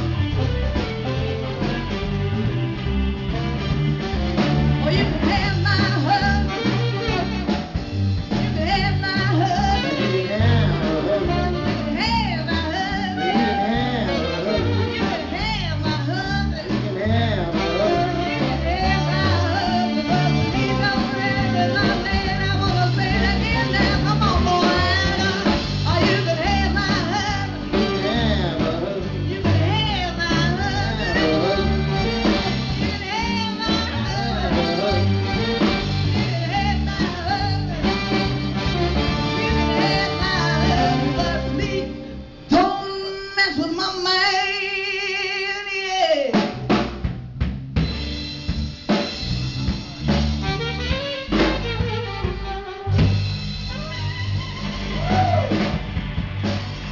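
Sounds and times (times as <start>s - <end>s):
guitars: 0.0s - 45.3s, 47.8s - 56.9s
drum kit: 0.0s - 56.9s
woman singing: 4.8s - 7.3s, 8.3s - 46.4s.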